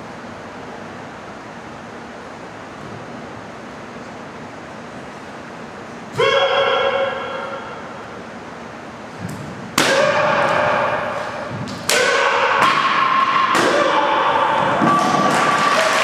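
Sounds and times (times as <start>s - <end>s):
person shouting: 6.2s - 7.7s, 9.8s - 14.8s.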